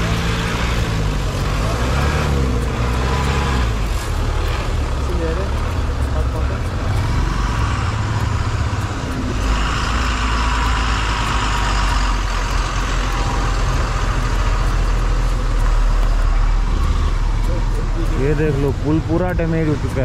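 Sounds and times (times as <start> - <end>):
hissing rush: 0.0 - 20.0.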